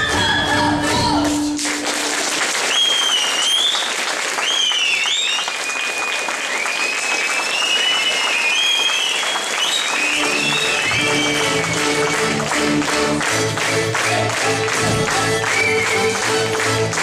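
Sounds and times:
audience applauding: 1.5s - 17.0s
high gliding whistles: 2.8s - 11.8s
instrumental music: 10.0s - 17.0s.

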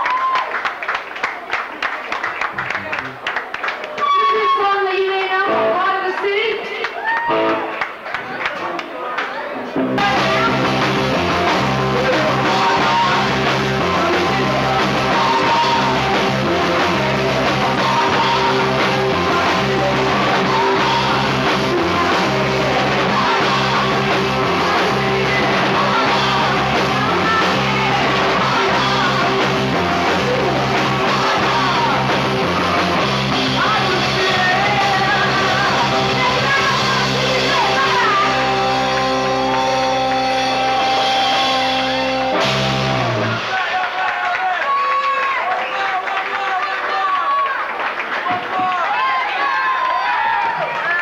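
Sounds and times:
bass guitar: 2.4s - 3.2s, 5.4s - 5.9s, 7.2s - 7.9s, 9.6s - 43.8s
drums: 3.8s - 8.1s, 9.4s - 46.0s, 47.4s - 51.0s
woman singing: 4.2s - 6.8s, 10.0s - 32.2s, 33.4s - 39.8s
electric guitars: 5.4s - 8.2s, 9.7s - 44.1s.

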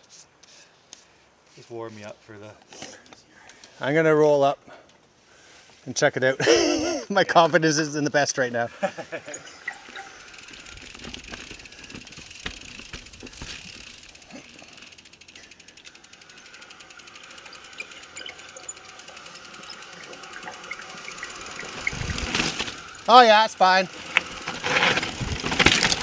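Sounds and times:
tyres rolling over dirt: 9.1s - 15.0s, 18.9s - 26.0s
bike freehub ticking: 9.2s - 26.0s
bike knocks: 10.6s - 14.0s.

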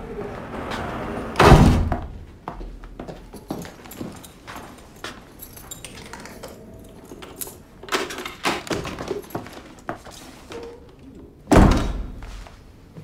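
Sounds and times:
heavy thud: 1.4s - 2.3s
metal clinks and knocks: 3.3s - 9.6s.

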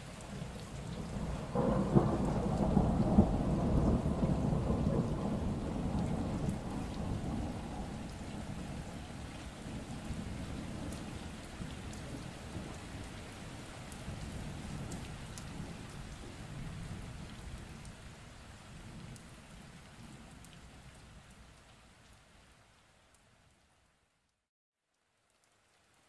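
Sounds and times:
steady rain falling: 0.0s - 26.0s.

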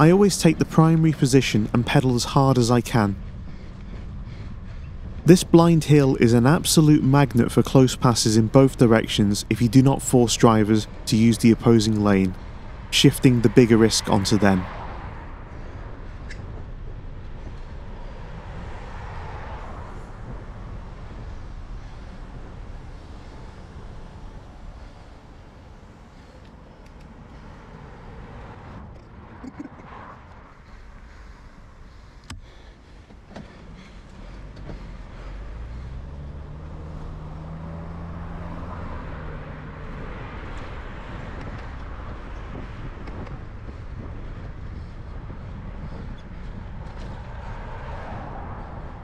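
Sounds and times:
car engine passing: 0.0s - 49.0s
tyres on road: 0.0s - 49.0s
wind rumbling on microphone: 2.8s - 10.0s, 12.3s - 32.7s, 38.8s - 49.0s.

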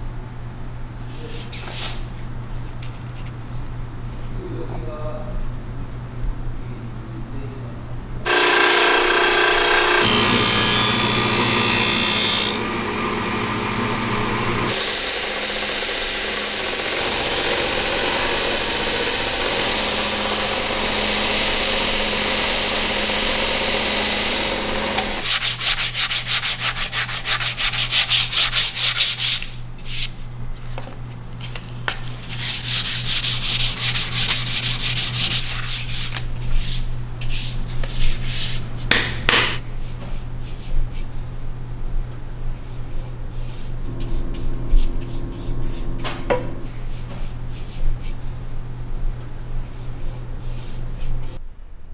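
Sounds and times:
belt sander grinding wood: 8.3s - 25.4s.

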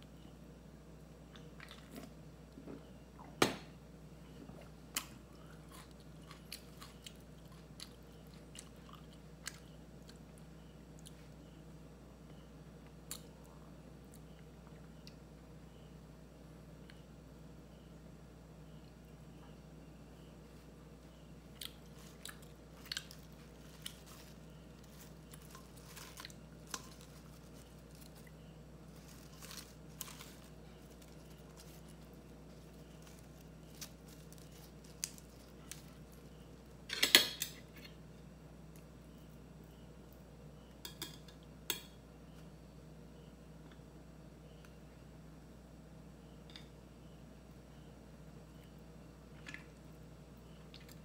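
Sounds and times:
lettuce crunch: 21.6s - 36.2s
lettuce leaves rustling: 21.8s - 36.2s.

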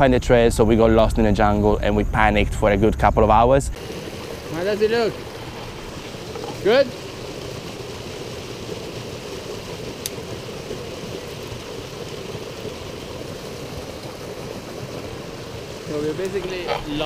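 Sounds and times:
stream running over rocks: 3.8s - 17.0s.

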